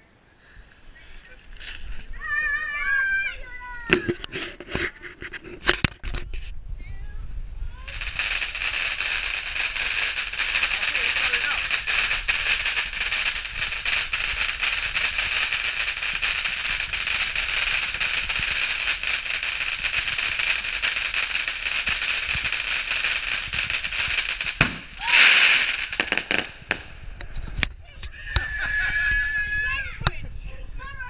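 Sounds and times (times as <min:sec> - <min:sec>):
firework fountain hissing and crackling: 0:00.0 - 0:06.6, 0:07.3 - 0:27.8
firework sharp cracks: 0:07.8 - 0:27.7.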